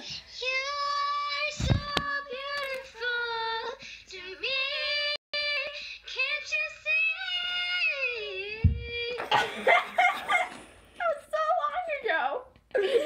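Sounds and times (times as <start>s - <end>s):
girl singing in a high voice: 0.0s - 9.3s
thump: 1.6s - 2.1s, 8.6s - 9.0s.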